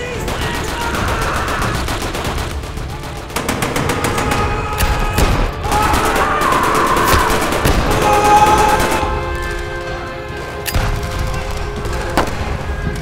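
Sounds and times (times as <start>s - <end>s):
rapid automatic gunfire: 0.0s - 4.7s, 5.7s - 9.2s
music: 0.0s - 13.0s.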